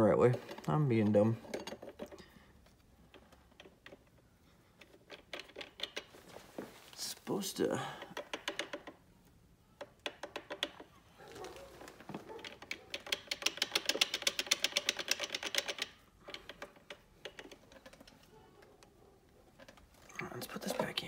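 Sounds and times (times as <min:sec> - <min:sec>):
clutch plates rattling metallic clicks: 0:12.4 - 0:18.8.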